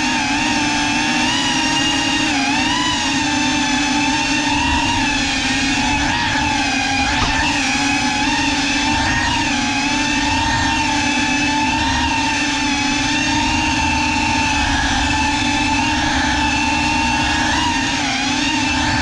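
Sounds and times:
drone motors whining: 0.0s - 19.0s.

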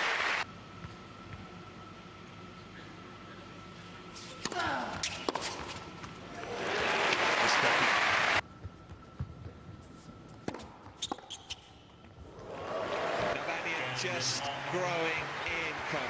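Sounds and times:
crowd applauding: 0.0s - 0.4s, 6.5s - 8.4s, 12.4s - 16.0s.

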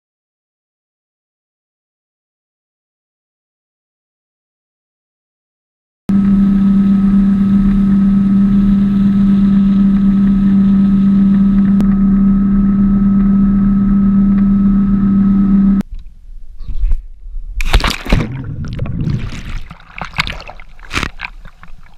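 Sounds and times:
motorboat engine running: 6.1s - 15.8s
wind and water rushing: 17.6s - 21.9s.

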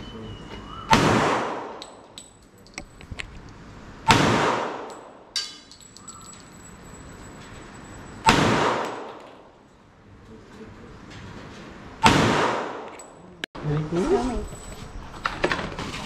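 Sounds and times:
pistol shots echoing: 0.9s - 2.0s, 4.1s - 5.6s, 8.3s - 9.4s, 12.0s - 12.9s.

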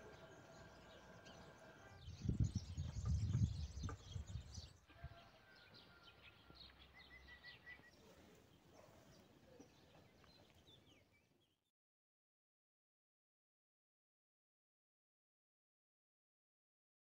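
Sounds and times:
small birds chirping: 0.0s - 11.7s
wind rumble on microphone: 2.0s - 5.2s.

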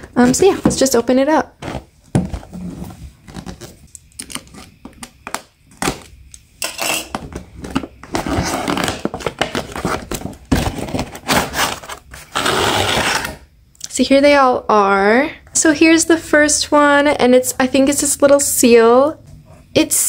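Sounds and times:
cardboard box scraping and rustling: 1.6s - 3.8s.

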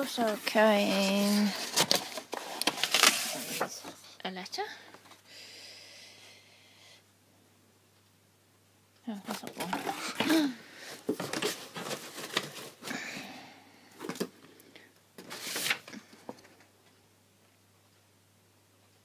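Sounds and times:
paper and card rustling: 0.0s - 4.1s, 9.2s - 12.9s, 15.2s - 16.7s.

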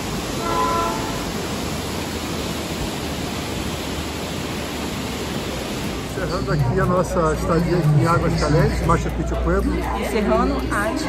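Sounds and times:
river water rushing over rocks: 0.0s - 7.7s.

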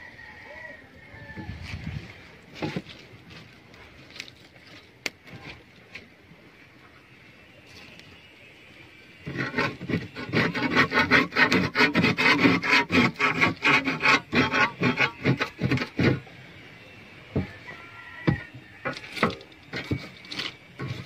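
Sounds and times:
blade scraping fiberglass: 9.2s - 16.3s, 18.3s - 21.0s.

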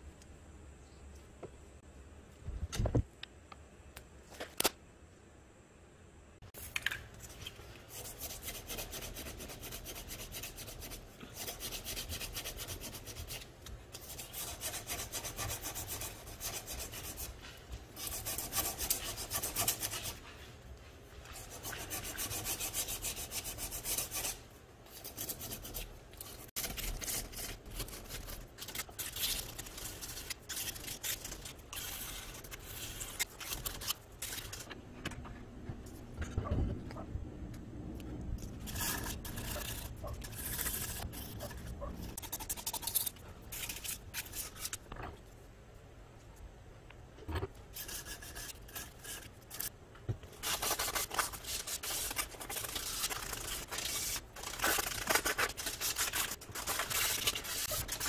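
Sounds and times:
hand-sanding scratchy rubbing: 7.9s - 13.4s, 14.0s - 17.4s, 18.0s - 20.2s, 21.4s - 24.4s, 38.7s - 44.6s, 50.4s - 58.0s.

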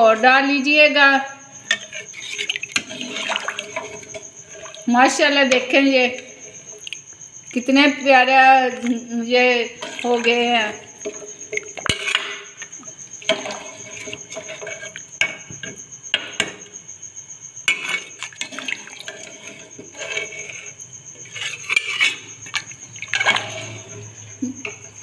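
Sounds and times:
ladle scraping metal pot: 1.6s - 6.9s, 9.6s - 15.8s, 17.7s - 25.0s
liquid being stirred: 1.6s - 7.7s, 9.6s - 15.8s, 17.7s - 25.0s.

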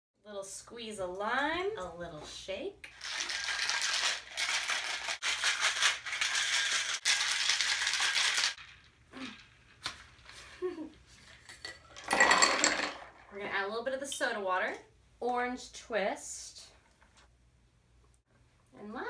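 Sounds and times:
ice rattling in cocktail shaker: 2.9s - 9.8s.

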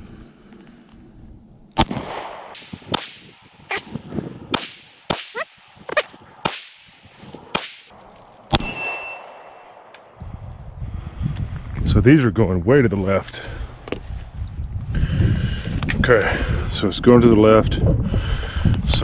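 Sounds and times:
pistol shots: 1.8s - 3.4s, 4.5s - 5.4s, 6.4s - 6.9s, 7.5s - 7.9s.

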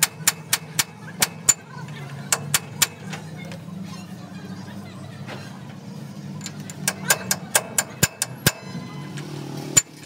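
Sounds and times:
metal parts clinking: 6.4s - 10.0s.

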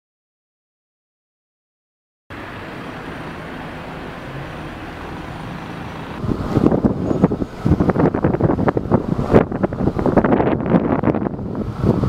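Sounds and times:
road traffic noise: 2.3s - 12.0s
wind buffeting microphone: 4.2s - 12.0s.

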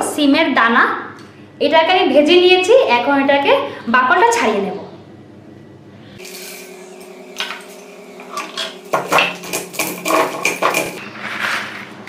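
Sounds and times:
stone roller crushing seeds: 7.3s - 12.0s.

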